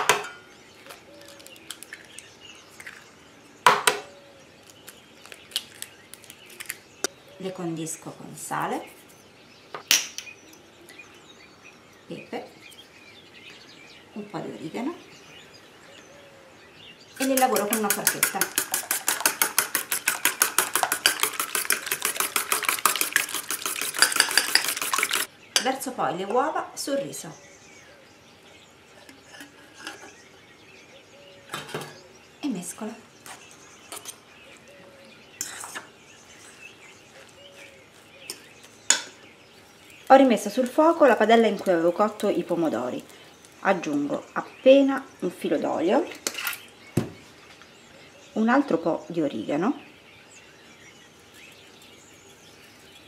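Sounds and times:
eggshell clicks and crackles: 0.8s - 3.0s, 4.6s - 7.1s, 17.2s - 25.3s
egg knocking on metal bowl: 17.2s - 25.3s.

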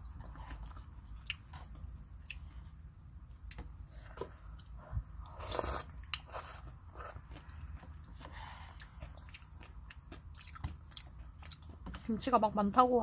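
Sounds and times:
person chewing noodles: 0.0s - 12.1s
person slurping broth: 5.3s - 6.6s.

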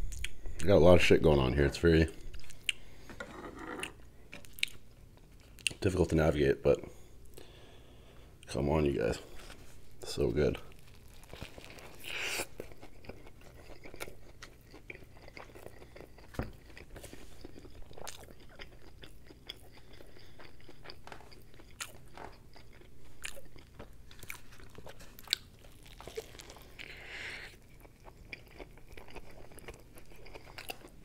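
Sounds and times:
biting into burger: 10.7s - 31.0s
wet chewing: 10.7s - 31.0s.

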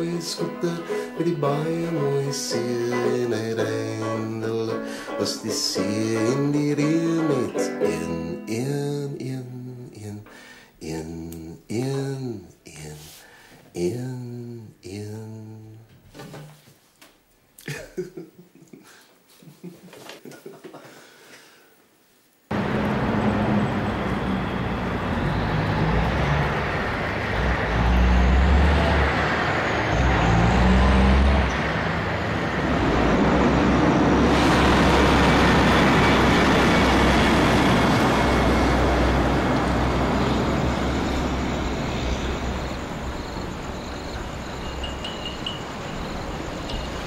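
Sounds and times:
heavy truck passing close: 22.5s - 47.0s.

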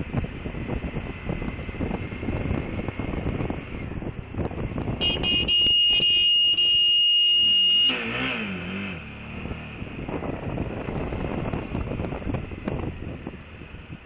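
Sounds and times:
wind rush on microphone: 0.0s - 6.2s, 9.4s - 14.0s
motorcycle engine: 0.0s - 13.8s
vehicle horn: 5.0s - 8.2s.

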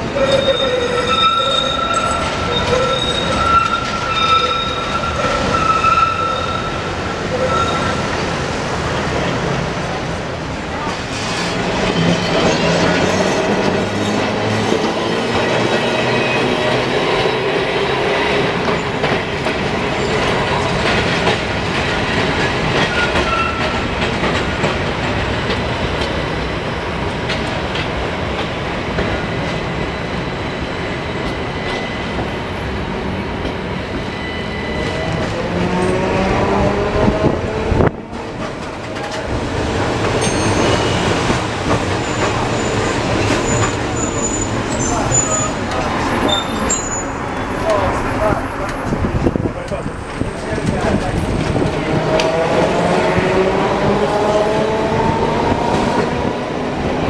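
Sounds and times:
tram wheels clattering on track: 0.0s - 57.0s.

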